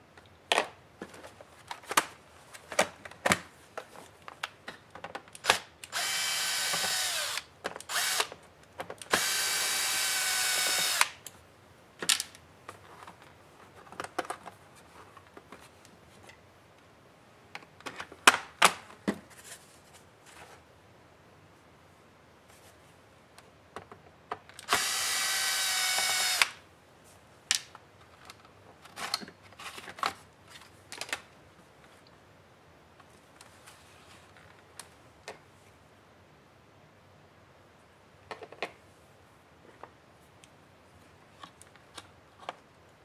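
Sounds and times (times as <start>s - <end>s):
electric screwdriver whining: 5.9s - 8.3s, 9.1s - 11.2s, 24.6s - 26.6s.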